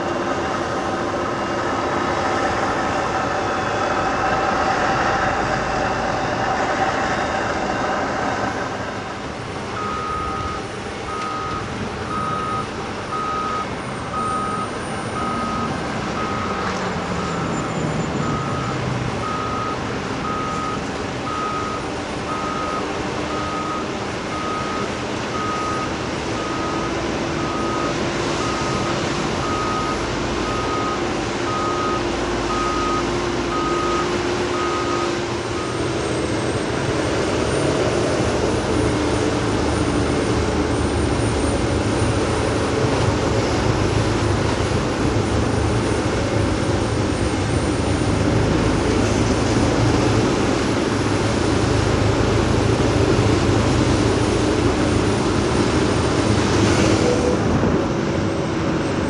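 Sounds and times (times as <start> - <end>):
reversing alarm beeping: 0.0 - 46.0
diesel machinery running: 0.0 - 59.0.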